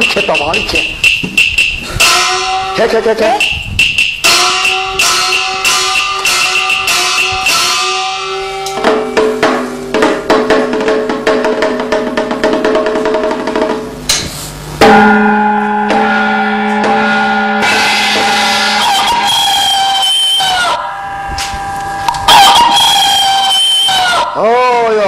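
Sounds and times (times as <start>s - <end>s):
melodic instruments: 0.0s - 10.0s
drum and percussion strikes: 0.0s - 24.4s.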